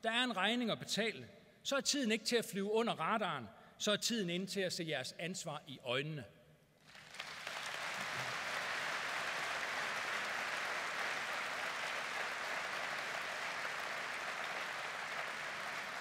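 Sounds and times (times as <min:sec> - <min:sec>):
audience applauding: 0:06.8 - 0:16.0.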